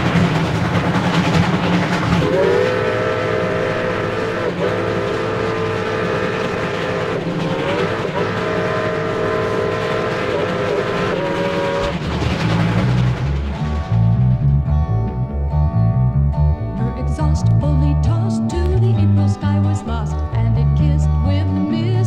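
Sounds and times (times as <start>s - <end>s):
rumble of running train: 0.0s - 22.0s
steam whistle blasts: 2.2s - 12.1s.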